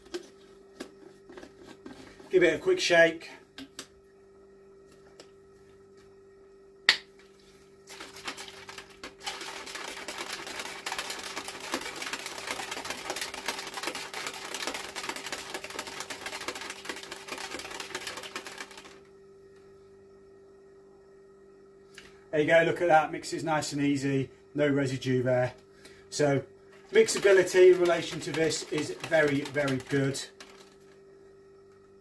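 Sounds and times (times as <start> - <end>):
shaker bottle rattling and sloshing: 7.8 - 19.0, 26.7 - 30.9.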